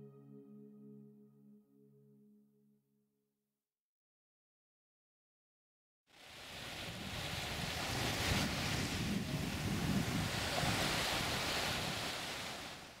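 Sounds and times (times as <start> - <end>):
sea surf washing on shore: 6.1 - 13.0
wind buffeting microphone: 6.6 - 12.7.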